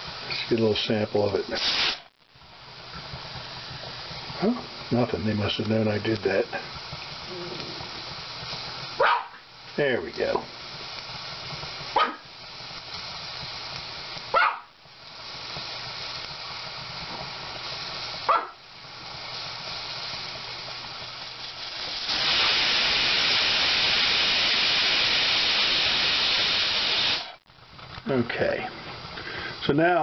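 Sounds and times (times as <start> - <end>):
steam blowing off loudly: 0.0 - 27.4, 28.1 - 30.0
pressure cooker hissing: 0.0 - 30.0
dog barking: 9.0 - 9.4, 12.0 - 12.2, 14.3 - 14.7, 18.3 - 18.6.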